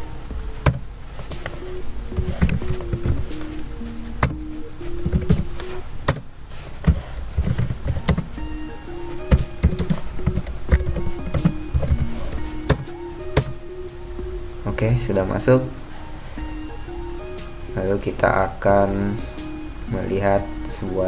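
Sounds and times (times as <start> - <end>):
background music melody: 0.0 - 21.0
computer keyboard keystrokes: 6.9 - 8.3, 9.3 - 12.8.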